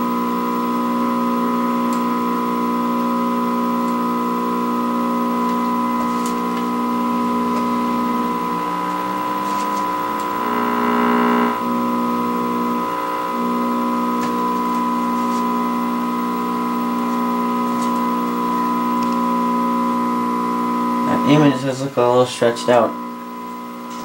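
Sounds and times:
keyboard chords through small speaker: 0:06.8 - 0:16.5.

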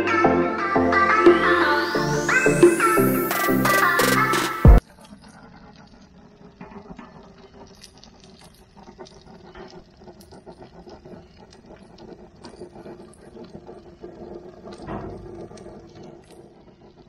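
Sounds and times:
intro music: 0:00.0 - 0:04.8
grill fire crackling: 0:04.8 - 0:17.0.

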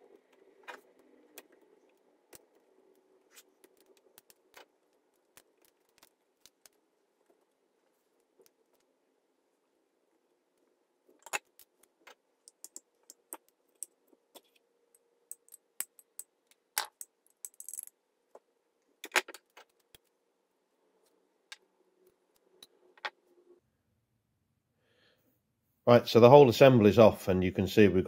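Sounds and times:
small metal parts clinking: 0:15.3 - 0:17.9.

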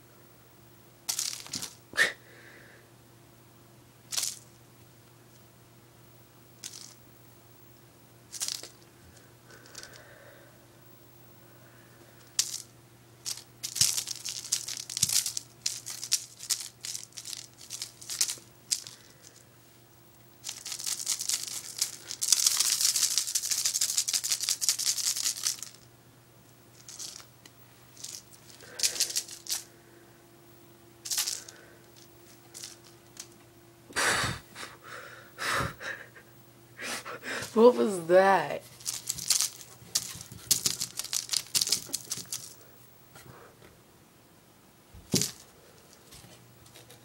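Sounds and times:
kittens pawing at a rattling toy: 0:08.4 - 0:08.8, 0:12.2 - 0:19.4, 0:20.4 - 0:25.8, 0:26.8 - 0:27.3, 0:28.0 - 0:29.7, 0:31.0 - 0:33.3, 0:38.6 - 0:42.6, 0:45.1 - 0:47.0.

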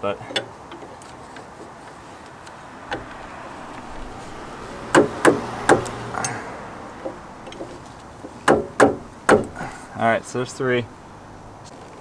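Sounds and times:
spanner wrench knocking on metal: 0:04.9 - 0:06.4, 0:07.0 - 0:09.6.

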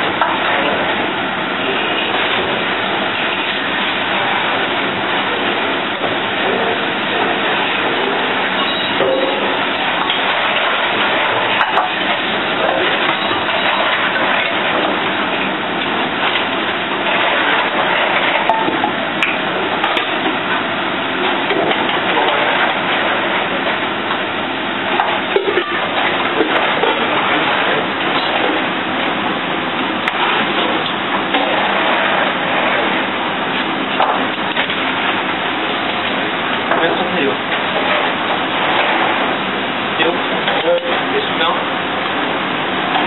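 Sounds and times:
pans and utensils clinking: 0:08.5 - 0:15.1.

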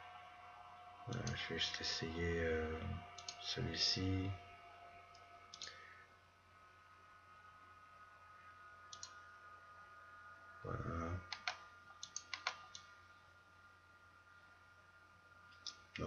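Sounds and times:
faint electrical hum: 0:00.0 - 0:16.0
computer mouse clicks: 0:05.5 - 0:05.8, 0:08.9 - 0:09.2, 0:11.2 - 0:12.9.

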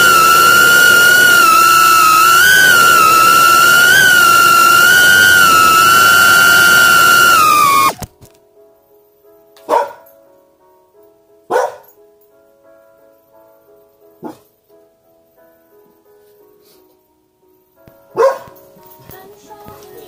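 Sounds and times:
high-pitched wavering tone: 0:00.0 - 0:08.0.

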